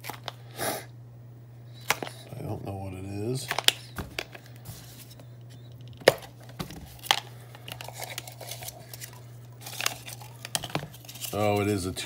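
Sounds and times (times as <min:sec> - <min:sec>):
packing wrap rustling: 0:03.5 - 0:12.0.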